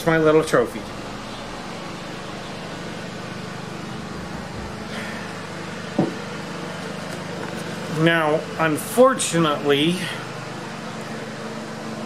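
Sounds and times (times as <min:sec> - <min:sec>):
low mechanical hum: 0:00.0 - 0:12.0
short knock: 0:06.0 - 0:06.2.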